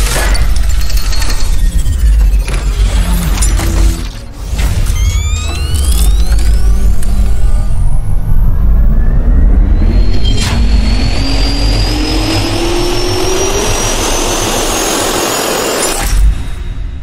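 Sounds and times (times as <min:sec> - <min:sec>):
jet engine roar with rising whine: 0:05.0 - 0:17.0.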